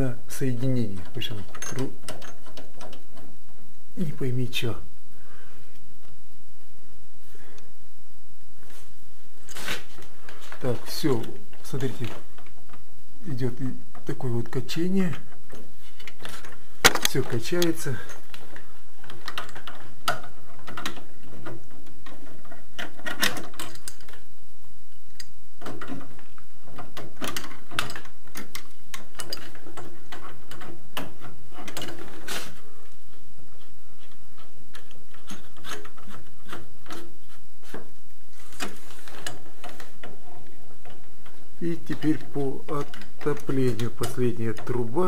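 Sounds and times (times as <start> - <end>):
clicks and knocks of fittings: 25.2 - 32.2.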